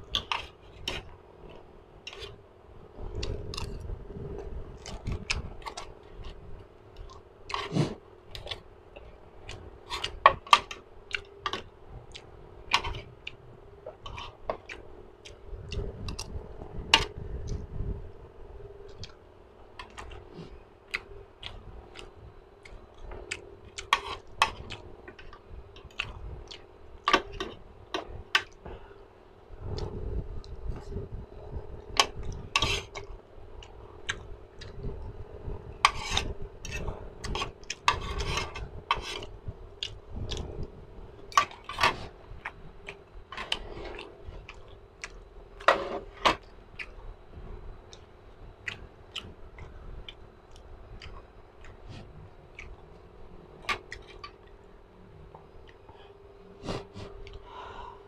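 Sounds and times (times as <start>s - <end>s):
chewing and wet mouth smacks: 47.9s - 52.9s.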